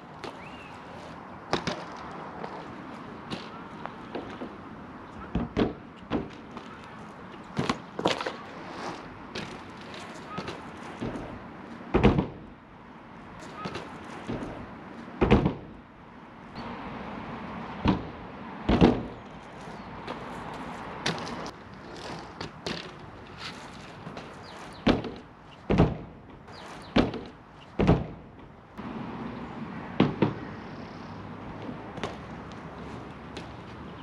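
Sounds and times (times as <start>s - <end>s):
bike thudding and clunking: 5.2s - 6.8s, 9.3s - 12.6s, 13.4s - 15.8s, 17.8s - 28.6s.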